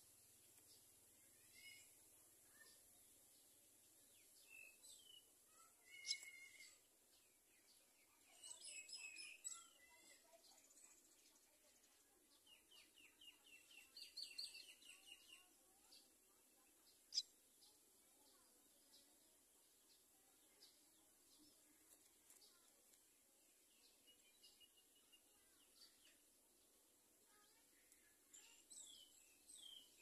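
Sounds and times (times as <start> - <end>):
nestlings begging chirps: 5.8 - 6.8, 17.1 - 17.3.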